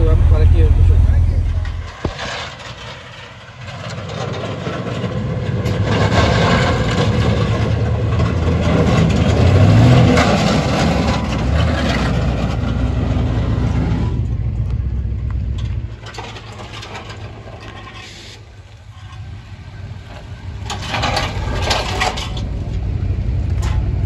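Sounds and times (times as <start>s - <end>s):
pickup truck driving past: 0.0s - 16.0s.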